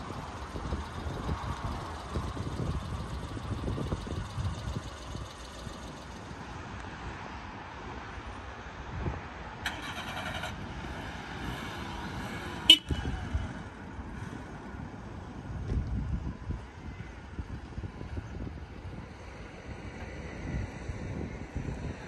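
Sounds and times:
wind rumble on microphone: 0:00.0 - 0:22.0
short horn toot: 0:12.7 - 0:13.2.

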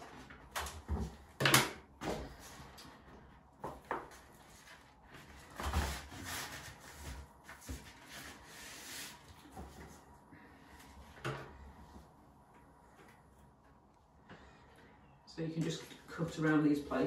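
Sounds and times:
paper rustling and rubbing: 0:04.1 - 0:10.0.

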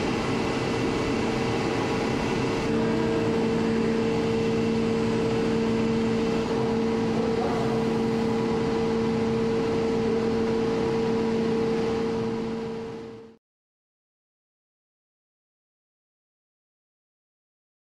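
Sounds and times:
machinery and ventilation hum: 0:00.0 - 0:13.4.

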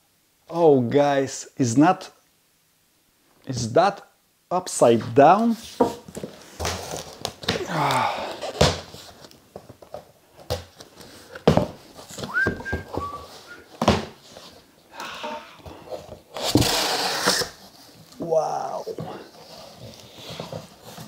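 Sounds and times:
cardboard rustling and scraping: 0:05.5 - 0:07.6, 0:08.3 - 0:14.7, 0:15.6 - 0:18.2, 0:19.0 - 0:21.0
cardboard flaps thunking: 0:11.4 - 0:14.2.

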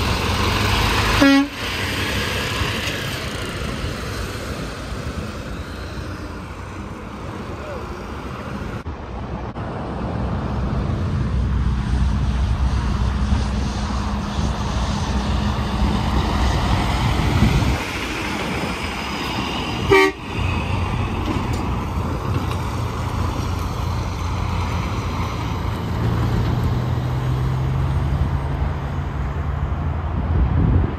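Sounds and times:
truck engine drone: 0:00.0 - 0:30.9.

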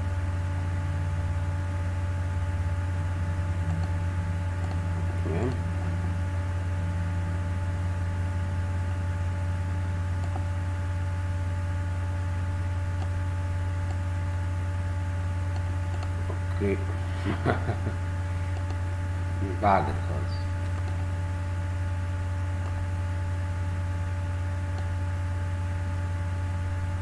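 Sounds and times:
low electrical hum: 0:00.0 - 0:27.0.

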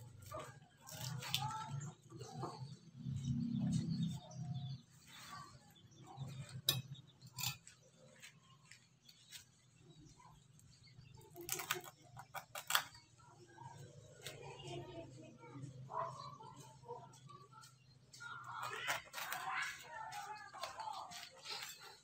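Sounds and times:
coconut husk tearing and scraping: 0:00.1 - 0:02.3, 0:11.3 - 0:12.9, 0:18.4 - 0:22.0.

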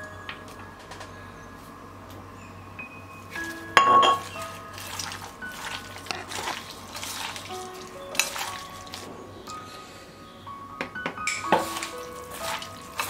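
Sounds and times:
soft background music: 0:00.0 - 0:13.0
hands squelching raw meat: 0:04.2 - 0:09.1, 0:11.6 - 0:13.0.

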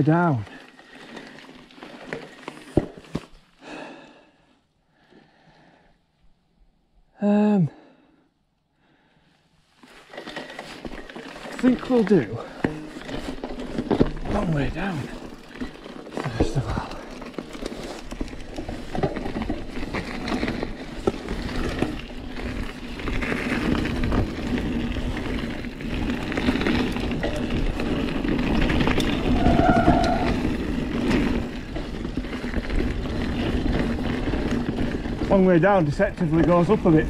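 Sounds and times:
bike chain rattling and clicking: 0:00.0 - 0:03.1, 0:09.9 - 0:37.0
tyres crunching over gravel: 0:09.8 - 0:37.0.

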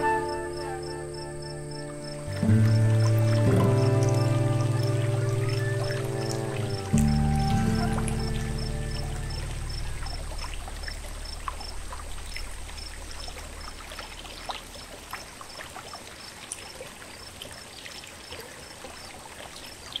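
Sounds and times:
low background music: 0:00.0 - 0:12.5
faint high chirp: 0:00.0 - 0:13.8
stream water trickling: 0:00.0 - 0:20.0.

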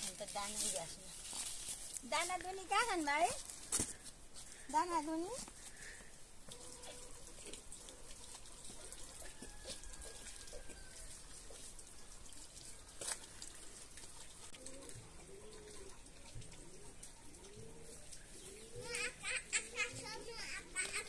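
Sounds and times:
water running into a bucket: 0:04.9 - 0:21.0.

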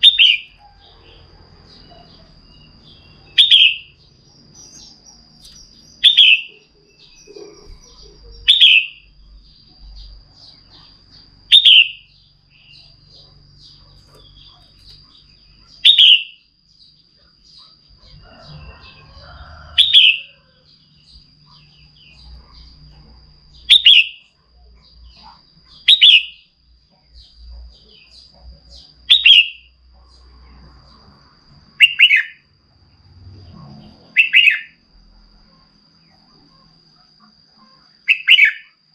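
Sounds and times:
bird calling: 0:00.0 - 0:04.0, 0:04.6 - 0:09.1, 0:09.9 - 0:16.4, 0:17.5 - 0:22.8, 0:23.6 - 0:24.4, 0:25.0 - 0:26.5, 0:27.2 - 0:29.7, 0:31.8 - 0:32.4, 0:34.1 - 0:34.8, 0:37.6 - 0:38.8.

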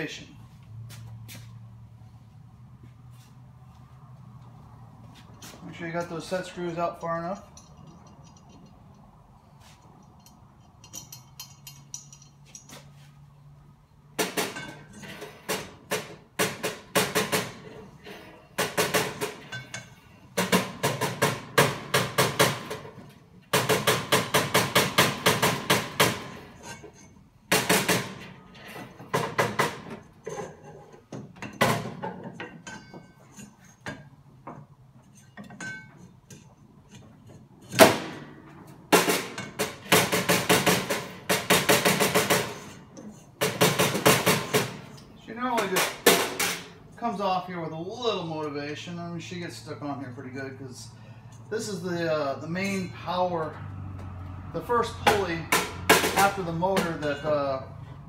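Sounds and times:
hammer striking metal pulley: 0:54.9 - 0:57.2.

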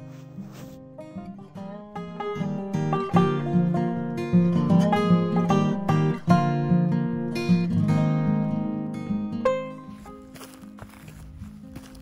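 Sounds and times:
plucked acoustic guitar tune: 0:00.0 - 0:12.0.

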